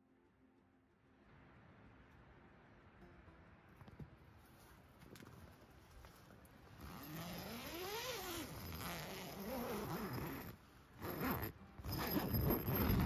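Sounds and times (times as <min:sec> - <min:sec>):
tent zipper pulled open: 0:06.8 - 0:13.0.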